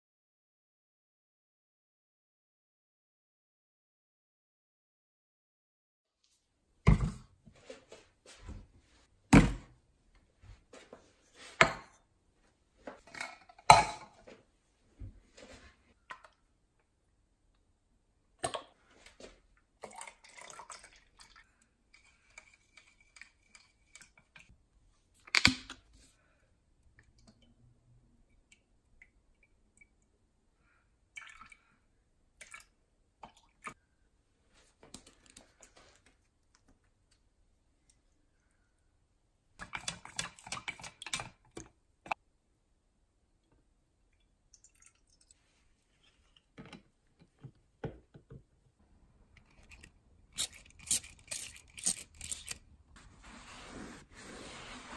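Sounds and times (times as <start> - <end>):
liquid pouring and dripping: 19.8 - 24.5, 31.1 - 31.8, 44.1 - 45.6.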